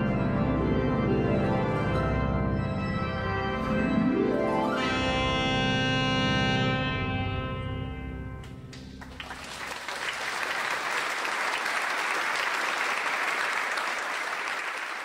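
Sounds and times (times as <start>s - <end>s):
held music chord: 0.0s - 8.8s
audience applause: 8.7s - 15.0s.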